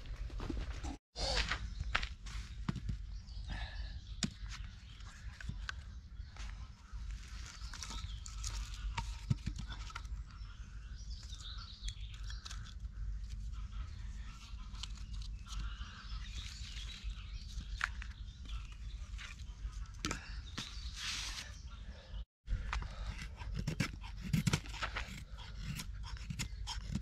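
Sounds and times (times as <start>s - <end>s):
birds chirping and singing: 1.2s - 27.0s
logs knocking and scraping: 7.3s - 10.4s, 22.6s - 27.0s.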